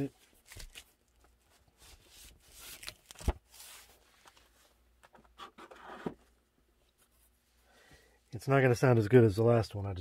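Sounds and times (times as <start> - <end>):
paper sleeves rustling: 0.0 - 6.2.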